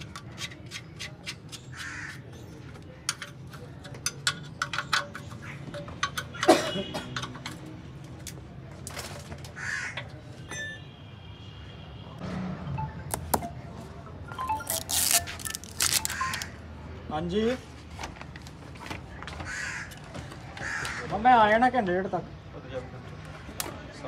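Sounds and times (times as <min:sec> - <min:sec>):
spanner clicking on metal: 0:03.1 - 0:06.5.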